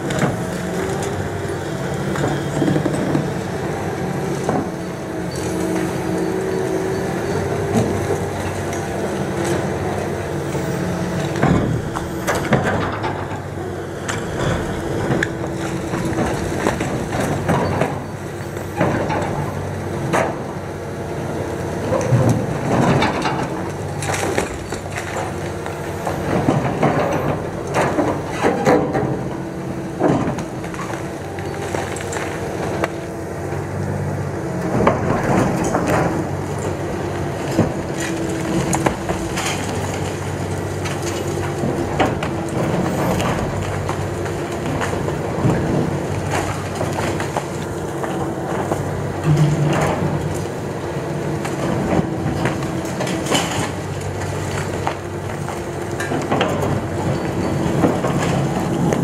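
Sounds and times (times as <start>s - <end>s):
excavator engine running: 0.0s - 59.0s
concrete cracking and crunching: 34.8s - 50.6s.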